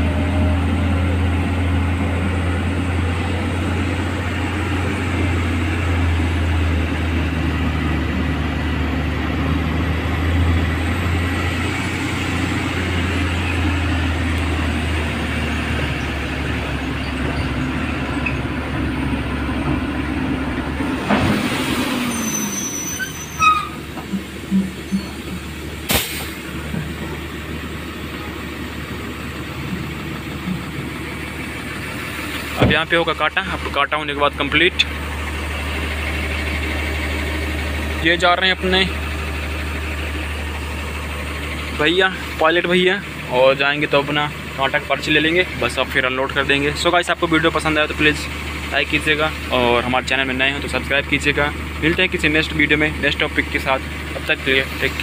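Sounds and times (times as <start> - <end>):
diesel truck engine: 0.0 - 55.0
sharp knock: 25.9 - 26.4
air brake hiss: 25.9 - 26.5.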